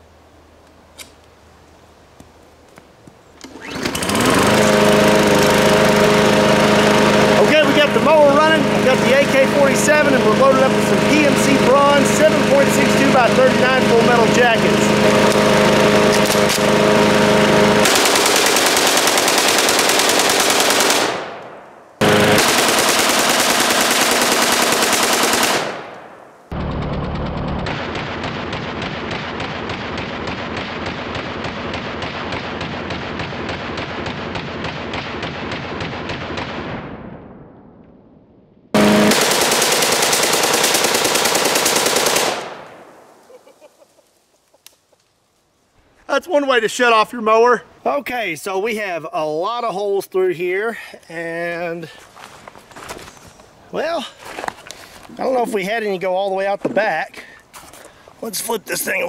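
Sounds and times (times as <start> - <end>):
lawn mower engine running: 3.4 - 21.1, 22.0 - 25.6, 26.5 - 27.7, 38.8 - 42.4
automatic rifle firing bursts: 6.7 - 26.1, 27.7 - 36.7, 38.8 - 42.8
automatic rifle burst: 17.8 - 21.5, 22.4 - 26.0, 39.1 - 42.6.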